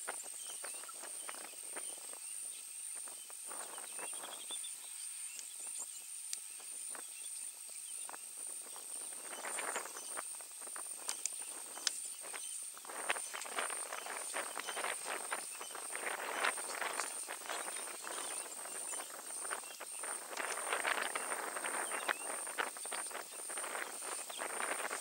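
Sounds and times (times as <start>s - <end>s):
steady high-pitched whine: 0.0s - 25.0s
elephants rustling in dry grass: 8.6s - 25.0s.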